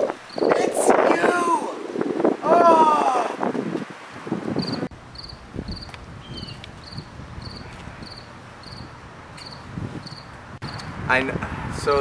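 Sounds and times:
cricket chirping: 4.6 - 10.9.

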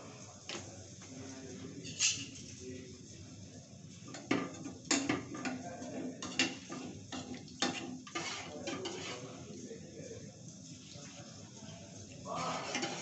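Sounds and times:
metal pots and utensils clinking: 1.8 - 2.5, 4.1 - 9.4, 12.3 - 13.0.

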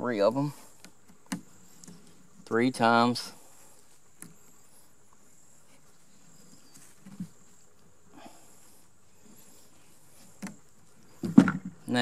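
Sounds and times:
rope rubbing and knocking on poles: 5.6 - 7.7, 9.2 - 12.0.

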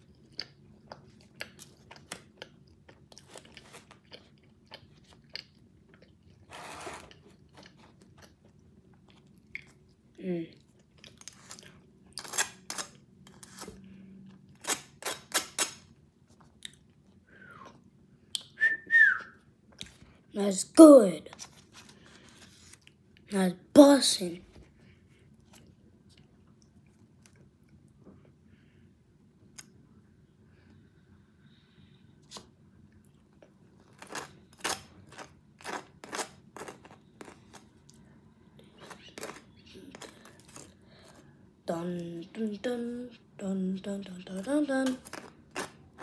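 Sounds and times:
whistle: 18.4 - 19.4
toasted bagel crunching: 33.8 - 38.0.

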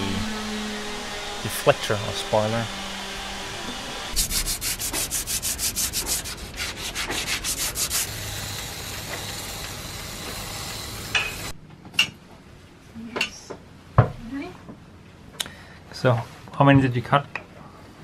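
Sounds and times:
cordless drill sanding: 2.0 - 11.5
hand sanding fiberglass hull: 4.1 - 10.8.

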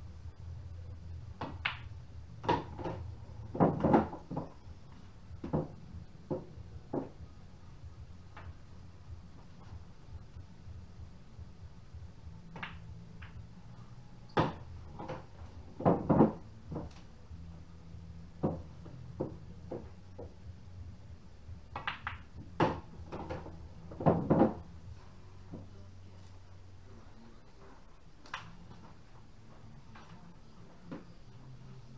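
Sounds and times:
low steady hum: 0.0 - 31.9
pool balls clacking: 1.4 - 4.6, 5.4 - 7.2, 14.4 - 17.1, 18.4 - 20.4, 21.8 - 24.7.

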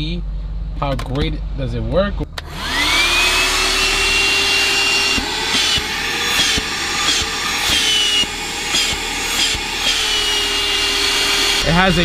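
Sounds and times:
vacuum cleaner motor whining: 2.4 - 12.0.

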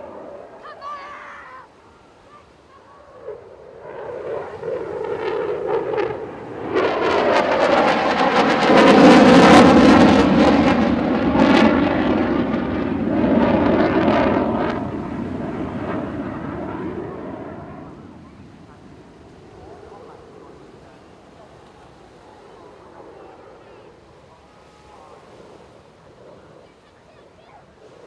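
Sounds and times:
jet engines in afterburner: 0.0 - 28.0.

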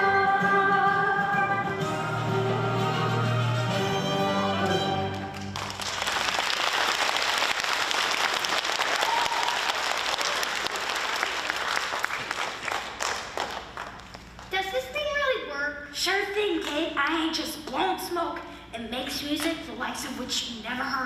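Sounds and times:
audience applause: 5.0 - 14.1.

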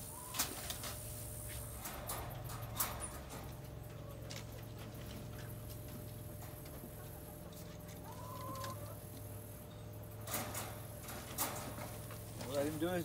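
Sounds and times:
chicken calling: 0.0 - 0.6, 6.6 - 9.8
steady low hum: 0.0 - 13.0.

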